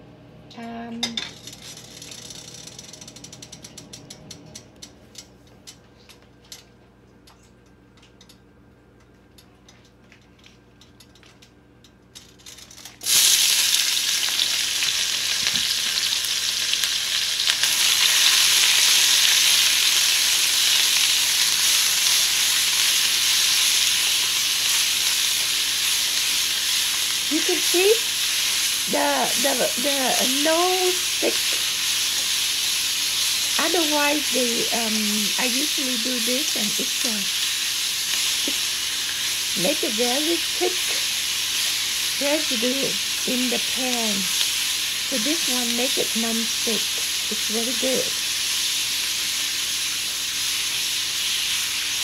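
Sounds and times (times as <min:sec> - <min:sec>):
hot oil crackling and popping: 0:10.8 - 0:52.0
vegetables sizzling in oil: 0:12.5 - 0:52.0.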